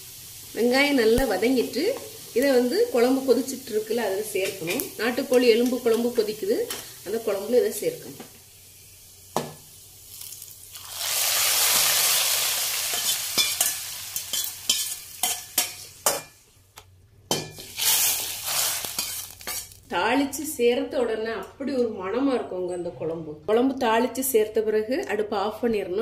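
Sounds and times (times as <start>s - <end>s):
hot oil sizzling: 0.0s - 16.4s, 17.4s - 19.9s.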